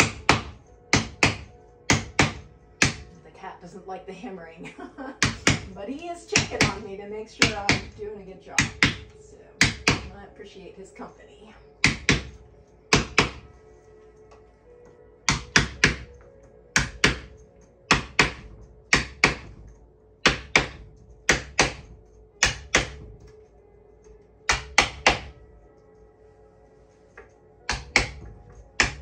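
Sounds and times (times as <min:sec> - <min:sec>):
hammer tapping on wooden tool: 0:00.0 - 0:03.1, 0:05.2 - 0:05.8, 0:06.4 - 0:06.8, 0:07.4 - 0:08.0, 0:08.6 - 0:10.1, 0:11.8 - 0:13.5, 0:15.3 - 0:19.6, 0:20.2 - 0:23.3, 0:24.0 - 0:25.4, 0:27.2 - 0:29.0.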